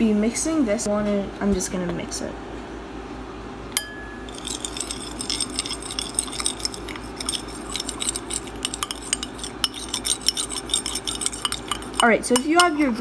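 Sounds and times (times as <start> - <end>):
teaspoon stirring in ceramic bowl: 4.2 - 13.0.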